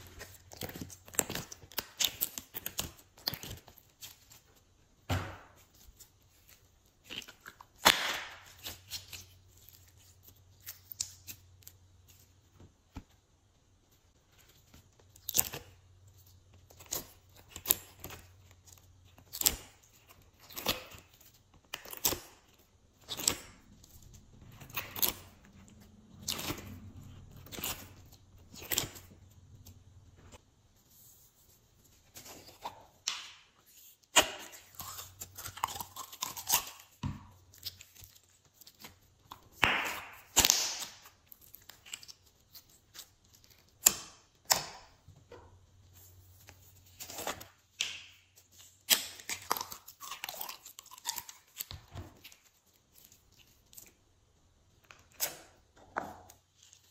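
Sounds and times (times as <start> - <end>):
slime stretching and squishing: 13.9 - 56.9
slime peeling and crackling: 15.1 - 29.8, 34.1 - 44.8, 46.9 - 53.9.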